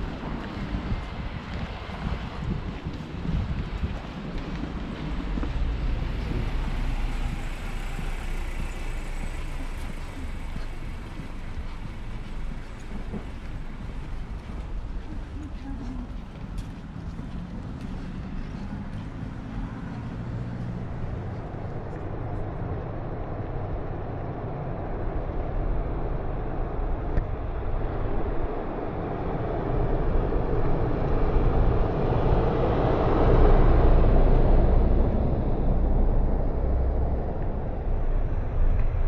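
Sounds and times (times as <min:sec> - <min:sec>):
low traffic rumble: 0:00.0 - 0:39.0
car driving past: 0:04.8 - 0:15.0, 0:16.0 - 0:22.5.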